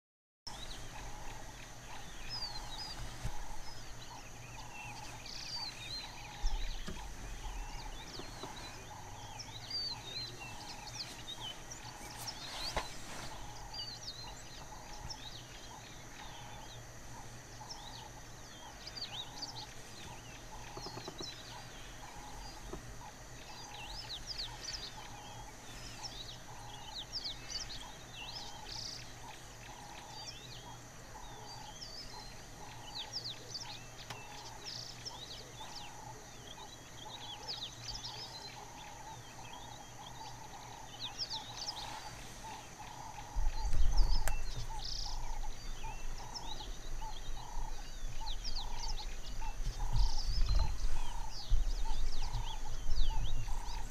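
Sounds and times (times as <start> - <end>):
birds chirping: 0.5 - 53.9
low hum: 0.5 - 53.9
steady high whine: 0.5 - 53.9.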